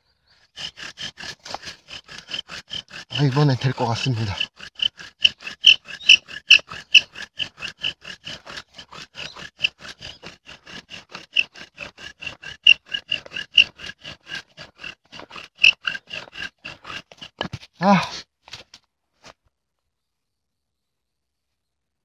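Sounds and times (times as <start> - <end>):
bow drill spindle squeaking: 0.6 - 17.7.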